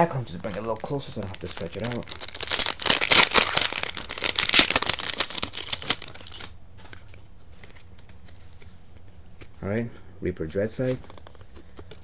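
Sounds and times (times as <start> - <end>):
foil wrapper crinkling: 0.3 - 6.6.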